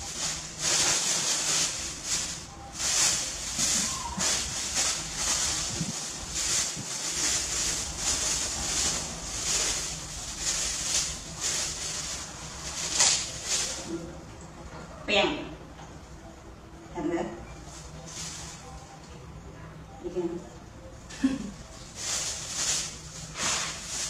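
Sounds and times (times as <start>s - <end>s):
plastic bag rustling: 0.0s - 14.2s, 17.7s - 18.8s, 21.3s - 24.0s.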